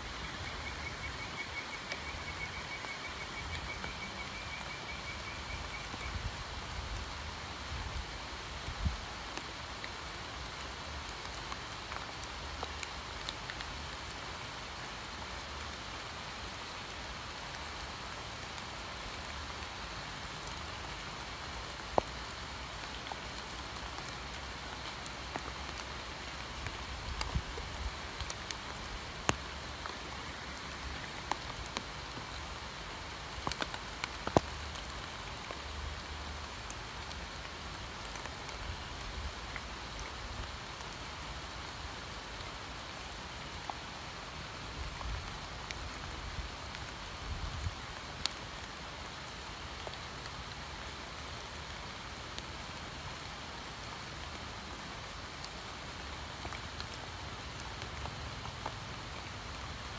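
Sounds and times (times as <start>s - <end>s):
steady rain falling: 0.0s - 59.9s
single raindrops striking close: 21.8s - 40.6s.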